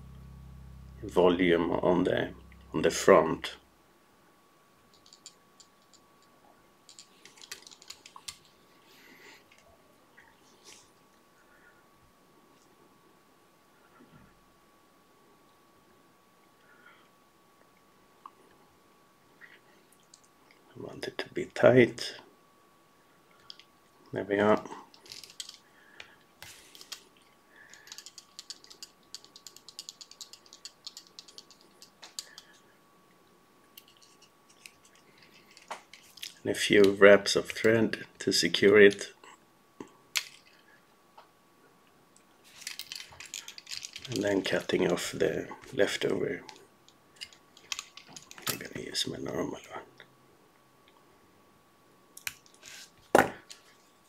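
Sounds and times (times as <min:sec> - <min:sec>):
faint clicks and ticks: 0:04.8 - 0:08.6, 0:19.9 - 0:20.6, 0:24.9 - 0:37.0
soft rustle: 0:42.3 - 0:45.1.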